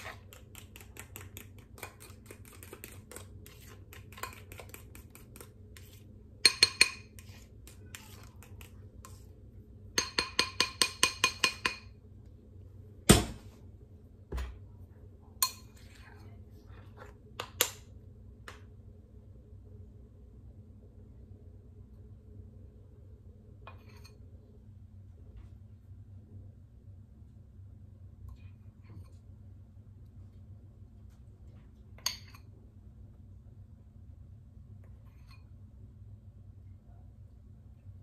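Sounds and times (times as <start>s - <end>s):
spoon clinking against glass bowl: 6.4s - 7.2s, 10.0s - 12.0s.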